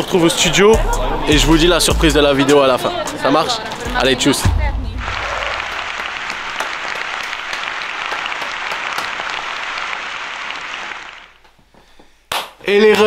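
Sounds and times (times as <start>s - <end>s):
crowd applause: 3.7s - 11.5s.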